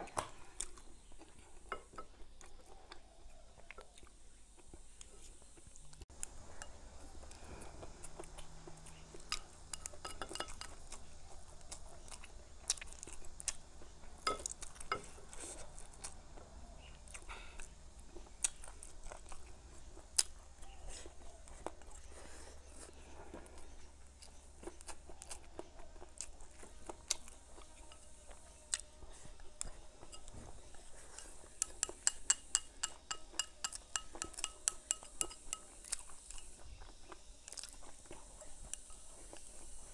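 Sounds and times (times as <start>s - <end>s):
chewing and crunching food: 0.0s - 39.9s
chopsticks clicking on bowl: 31.6s - 36.5s.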